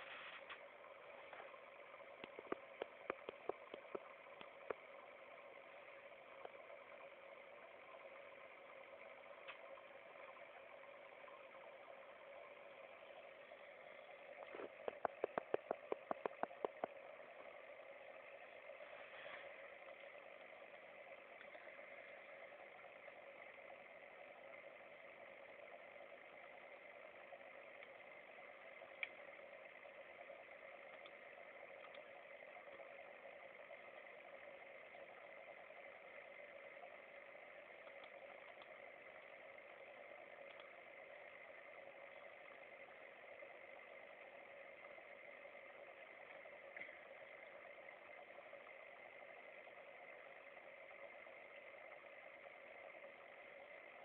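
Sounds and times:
faint steady hum: 0.0s - 54.0s
rapid clicks: 0.0s - 54.0s.

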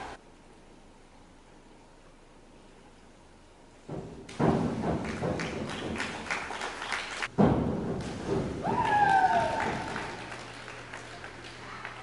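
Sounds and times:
people clapping and cheering: 4.9s - 7.3s, 8.6s - 12.0s
sharp thud: 7.3s - 8.6s
falling whoop: 8.6s - 10.0s.

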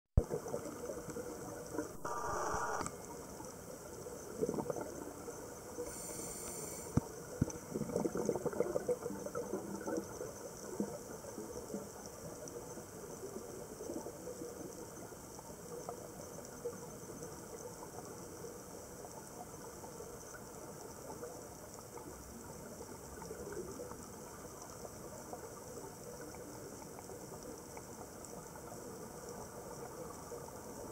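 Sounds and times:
faint underwater crackling: 0.2s - 30.9s
underwater hiss: 2.0s - 2.9s, 5.7s - 7.3s.

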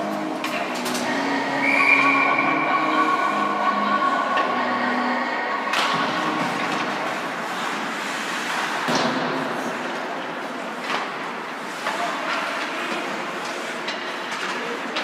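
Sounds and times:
skates on ice: 5.9s - 15.0s.

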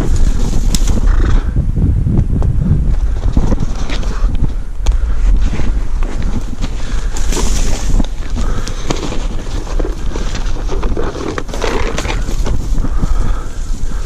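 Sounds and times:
wind buffeting microphone: 0.0s - 14.0s
clicks and knocks of gear: 3.3s - 12.7s
dry brush rustling: 5.2s - 14.0s
backpack fabric rustling: 5.5s - 12.9s.

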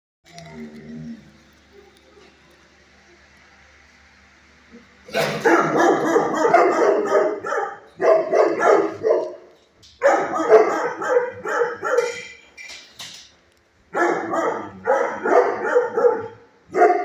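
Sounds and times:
dogs barking rapidly: 5.1s - 12.4s, 13.9s - 17.0s.

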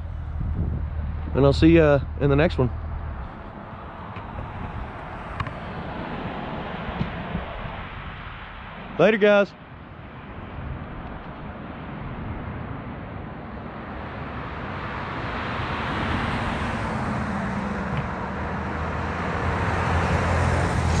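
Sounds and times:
vehicle engine running: 0.0s - 8.8s
broad rushing noise: 0.0s - 16.4s.

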